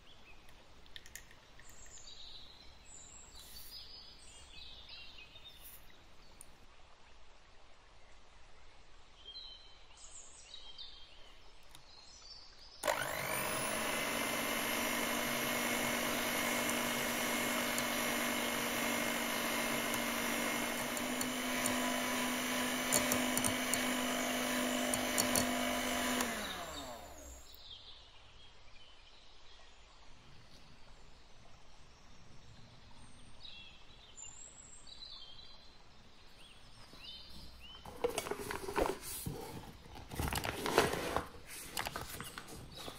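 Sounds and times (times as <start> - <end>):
electric hand mixer whisking: 12.8 - 27.6.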